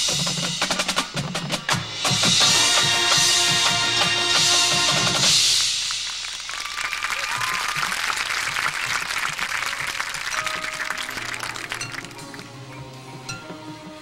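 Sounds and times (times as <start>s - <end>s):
marching band music: 0.0s - 6.5s, 7.5s - 14.0s
crowd applauding and cheering: 2.4s - 14.0s
whistles from crowd: 6.1s - 10.0s.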